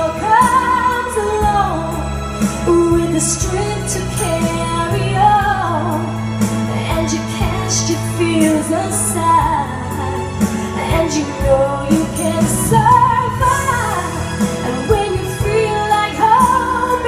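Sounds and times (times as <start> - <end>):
woman singing into microphone: 0.0 - 17.0
backing music with bass and beat: 11.9 - 15.7.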